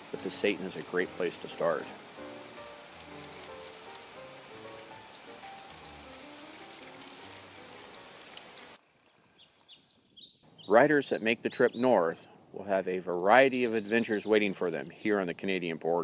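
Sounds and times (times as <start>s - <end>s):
soft background music: 0.0s - 8.5s
stream water rushing: 0.0s - 8.8s
faint bird chirps: 9.0s - 15.1s.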